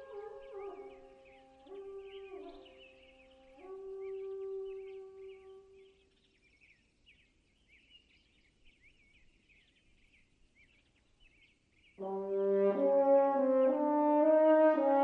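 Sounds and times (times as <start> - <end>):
small birds chirping: 0.0 - 12.1
french horn note: 12.0 - 15.0.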